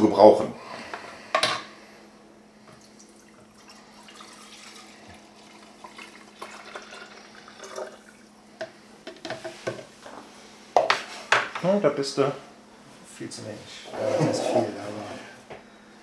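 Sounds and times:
low steady hum: 0:00.0 - 0:10.8
liquid trickling and splashing: 0:02.8 - 0:08.3.

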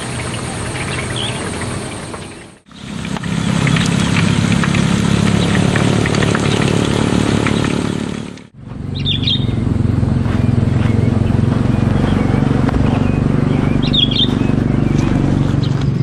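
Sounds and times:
low droning hum: 0:00.0 - 0:16.0
bird chirps: 0:00.7 - 0:01.5, 0:08.9 - 0:16.0.

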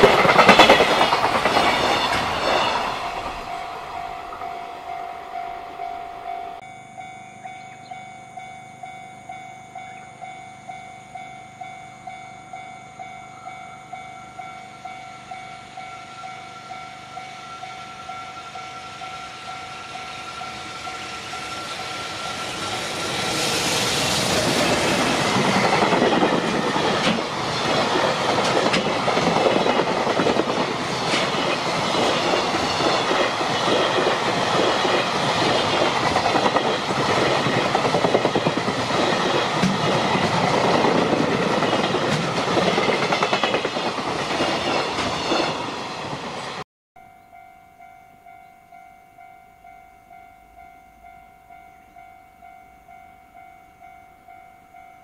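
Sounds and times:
wheels clattering over rail joints: 0:00.0 - 0:03.7
train passing with rumble and hiss: 0:00.0 - 0:46.6
faint pulsing tone: 0:03.4 - 0:22.7.

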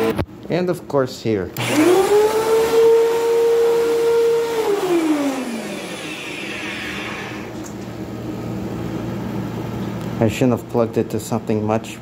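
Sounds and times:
vacuum cleaner motor whining: 0:01.6 - 0:07.7.

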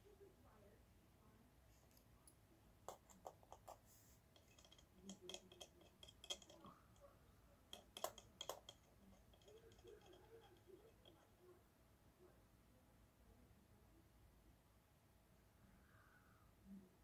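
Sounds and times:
faint clicks of small parts: 0:01.8 - 0:07.1, 0:07.7 - 0:11.4.

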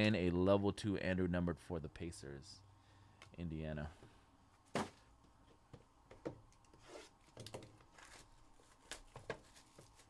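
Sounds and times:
hands handling cardboard boxes: 0:04.6 - 0:10.0.

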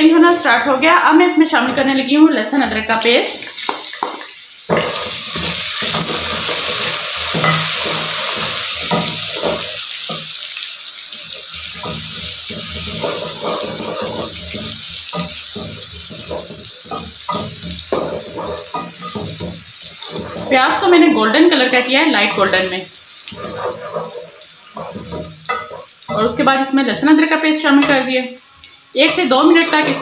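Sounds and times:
onions sizzling in hot oil: 0:00.0 - 0:30.0
wooden spoon stirring and scraping: 0:11.3 - 0:21.0, 0:22.1 - 0:26.4.

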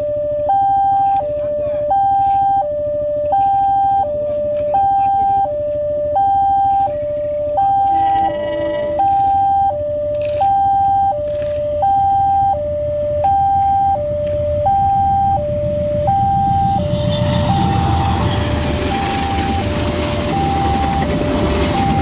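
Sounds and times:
two-tone crossing alarm: 0:00.0 - 0:22.0
train rumble: 0:15.4 - 0:22.0.

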